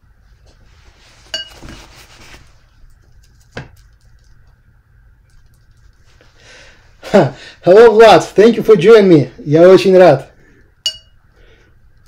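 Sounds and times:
paintbrush swishing and scrubbing: 0.6 - 2.8
paintbrush clinking on metal palette: 10.8 - 11.2.

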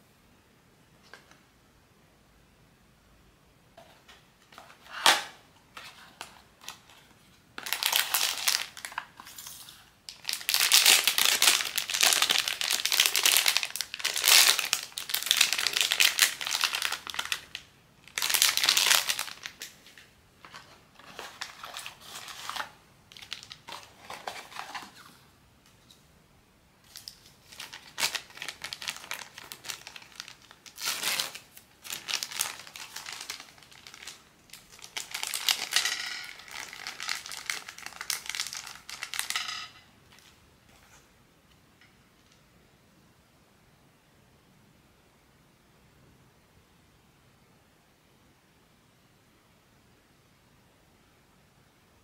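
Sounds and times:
packaging crinkling and rustling: 4.5 - 25.2, 26.8 - 41.0.

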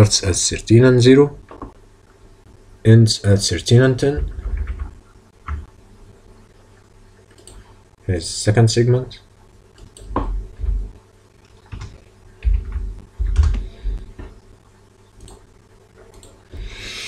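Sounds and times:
computer keyboard keystrokes: 11.7 - 13.6.

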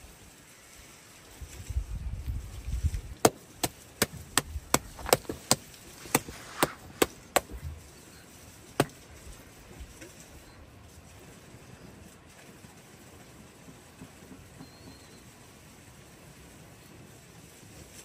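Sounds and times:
dull low thuds: 2.8 - 7.8
sharp knocks: 3.2 - 7.7.

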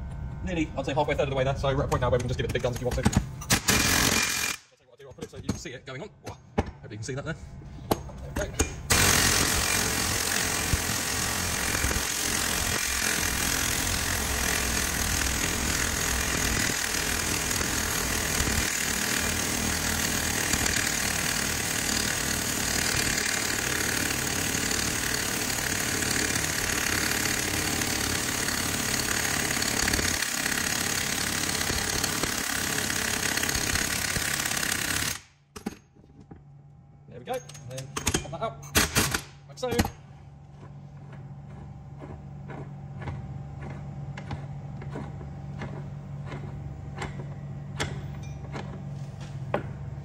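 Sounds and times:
air impact wrench hammering: 2.4 - 4.7, 7.8 - 35.9.

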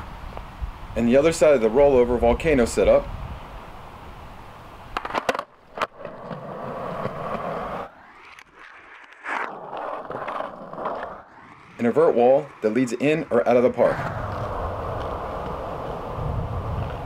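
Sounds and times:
skateboard wheels rolling on concrete: 0.0 - 17.0
skateboard clacks: 4.9 - 7.9.

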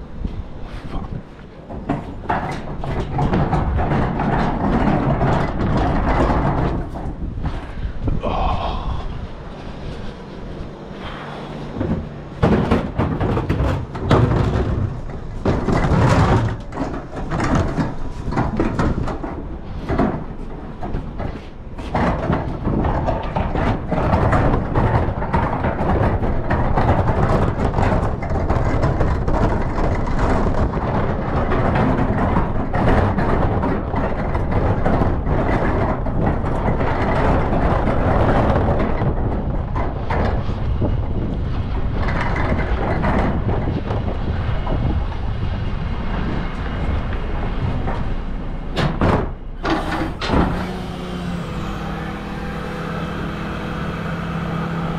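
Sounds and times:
plastic wheelie bin rolling: 0.8 - 7.7, 11.7 - 48.2.

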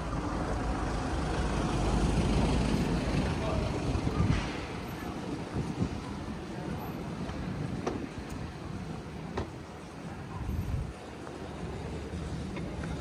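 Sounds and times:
passing traffic rumble: 0.0 - 13.0
wind buffeting microphone: 3.7 - 9.4, 10.2 - 11.1.

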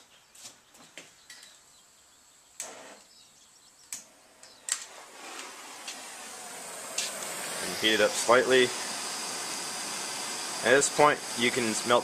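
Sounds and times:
hiss of gas and flame: 4.9 - 12.0
gas torch igniter clicks: 6.9 - 7.4.

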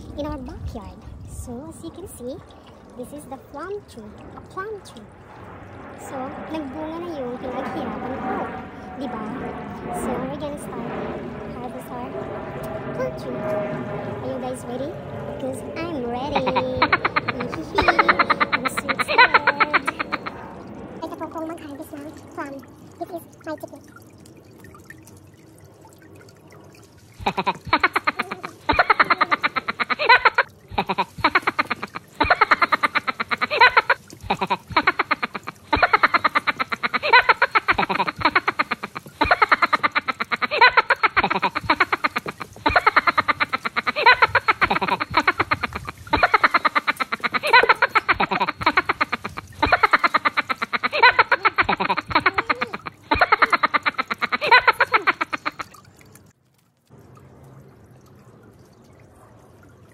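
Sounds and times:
rapid croak-like pulses: 0.0 - 56.3
woman's rapid rattling laugh: 16.4 - 20.3, 27.2 - 55.7.

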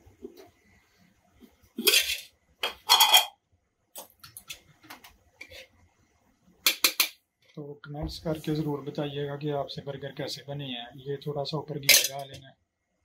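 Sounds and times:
cutlery clattering on cookware: 1.8 - 3.4, 6.7 - 7.2, 11.9 - 12.4.

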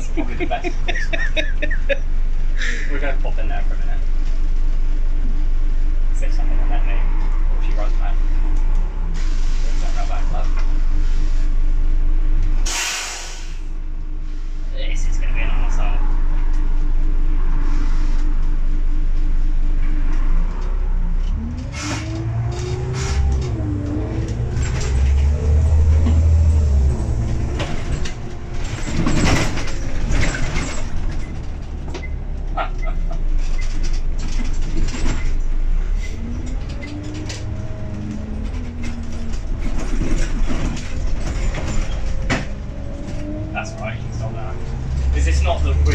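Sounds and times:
bus body rattles and clicks: 0.0 - 5.4, 20.1 - 45.9
diesel bus engine: 0.0 - 45.9.

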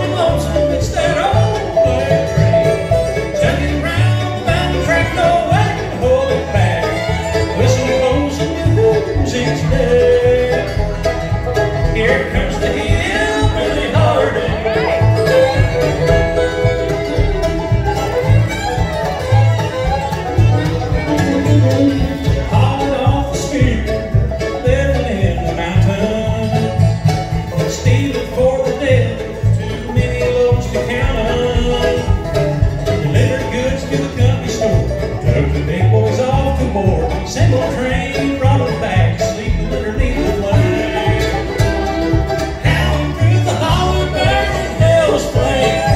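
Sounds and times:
acoustic guitar: 0.0 - 45.9
banjo: 0.0 - 45.9
bowed fiddle: 0.0 - 45.9
mandolin: 0.0 - 45.9
upright bass notes: 0.0 - 45.9.

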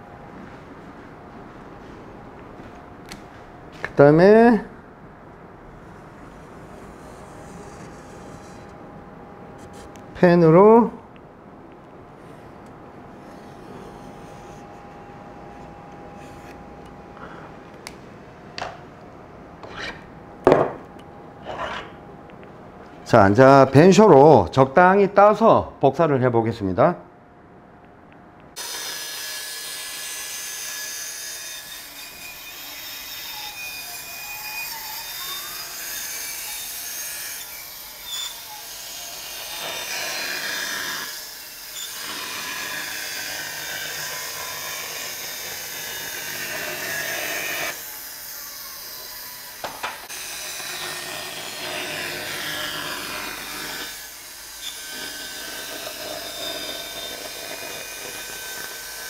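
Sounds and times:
band saw cutting wood: 5.8 - 8.8, 13.1 - 16.8, 28.6 - 59.0.

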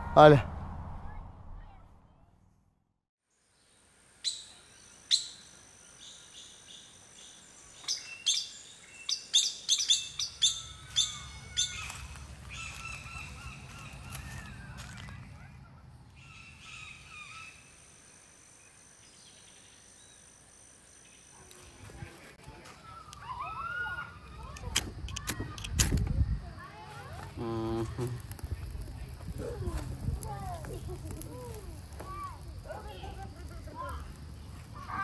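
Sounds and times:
birds chirping: 4.2 - 17.8, 27.4 - 35.0.

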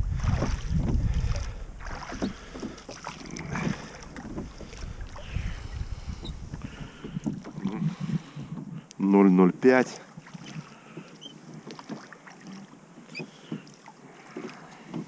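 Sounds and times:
wind rumble on microphone: 0.0 - 2.5, 3.2 - 8.9
oars splashing in water: 0.0 - 8.8, 9.8 - 15.0.

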